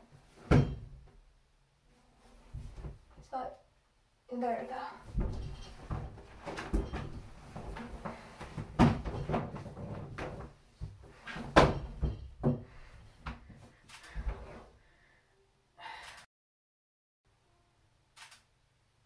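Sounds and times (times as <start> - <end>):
heavy books thudding against bathtub: 0.4 - 1.0, 5.1 - 13.6.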